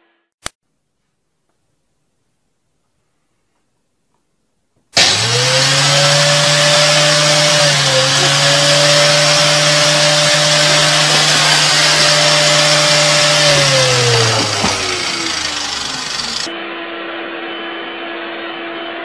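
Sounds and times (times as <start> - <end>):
electric motor running with hiss: 5.0 - 16.5.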